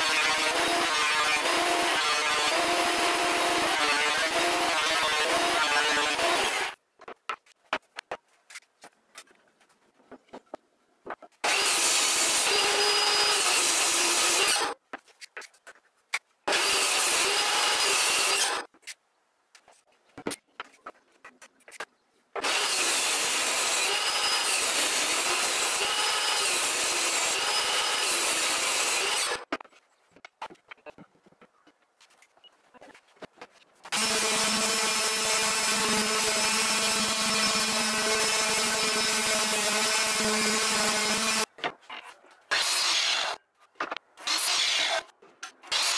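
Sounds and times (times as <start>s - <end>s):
table saw cutting wood: 0.0s - 6.8s, 11.4s - 14.8s, 16.5s - 18.7s, 22.4s - 29.4s, 33.9s - 41.5s, 42.5s - 43.4s, 44.2s - 45.1s.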